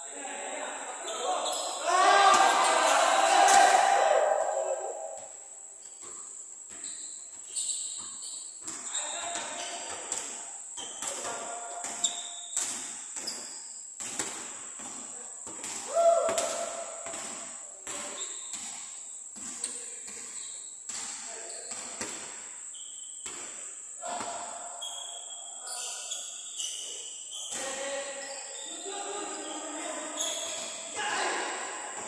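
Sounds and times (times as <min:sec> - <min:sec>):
shoe squeal: 0:01.0 - 0:03.0, 0:06.7 - 0:10.1, 0:10.8 - 0:13.9, 0:18.0 - 0:18.5, 0:19.6 - 0:22.0, 0:22.6 - 0:23.3, 0:24.0 - 0:31.2
basketballs bouncing on court: 0:06.0 - 0:13.4, 0:14.0 - 0:22.4.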